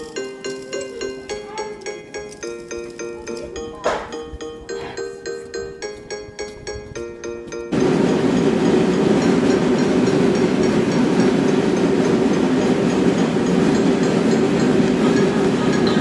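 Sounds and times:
faint regular ticking: 0:00.0 - 0:04.6, 0:05.2 - 0:16.0
machinery rumbling: 0:00.0 - 0:16.0.

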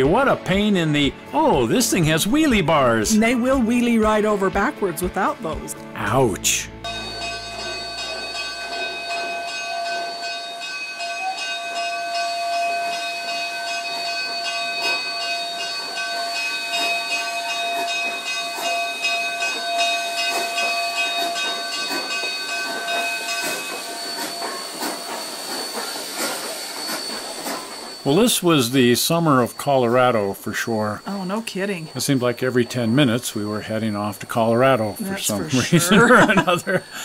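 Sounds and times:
steam locomotive rolling: 0:00.0 - 0:37.0
steady multi-pitch whine: 0:06.8 - 0:10.6, 0:14.8 - 0:37.0
steam hissing: 0:12.5 - 0:37.0.

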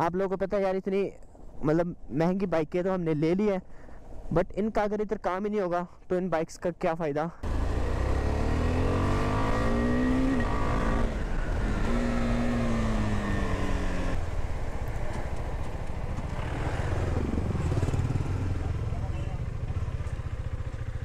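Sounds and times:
motorcycle engine revving: 0:07.4 - 0:14.2, 0:15.8 - 0:21.0.

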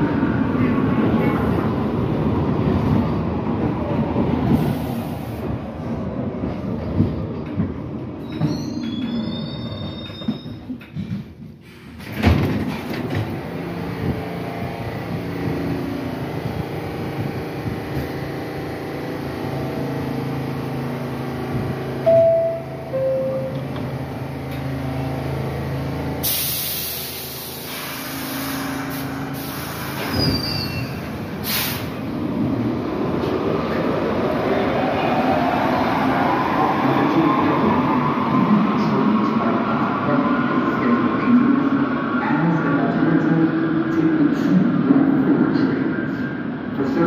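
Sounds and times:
two-note falling chime: 0:22.1 - 0:23.6
hissing air: 0:26.2 - 0:30.3, 0:31.4 - 0:32.1.

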